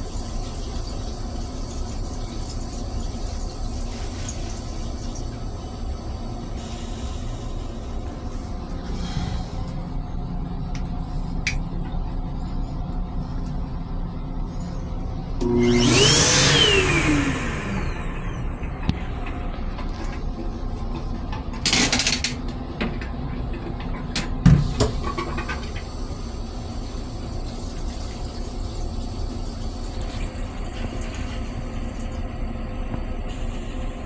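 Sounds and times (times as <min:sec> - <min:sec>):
railcar low rumble: 0:05.3 - 0:15.4, 0:31.6 - 0:34.0.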